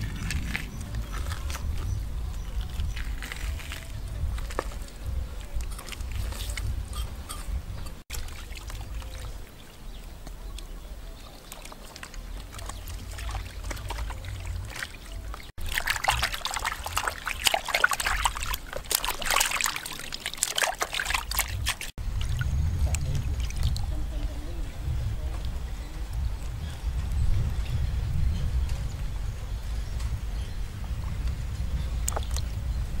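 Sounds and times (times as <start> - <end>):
water sloshing in a basin: 0.0 - 26.1.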